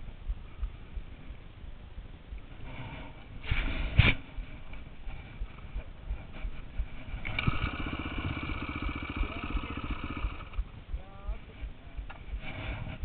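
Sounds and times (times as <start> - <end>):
dirt bike engine running: 0.0 - 13.0
irregular low thumps: 0.0 - 13.0.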